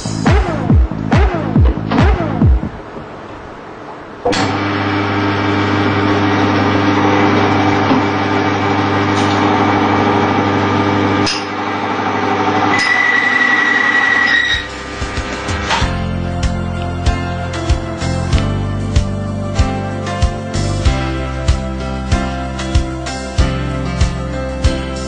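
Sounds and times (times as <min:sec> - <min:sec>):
high metal squeal: 0:12.7 - 0:14.9.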